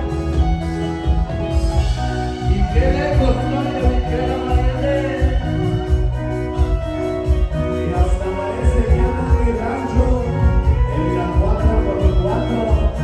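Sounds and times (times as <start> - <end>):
live band playing dance music: 0.0 - 13.0
person singing: 2.3 - 6.6.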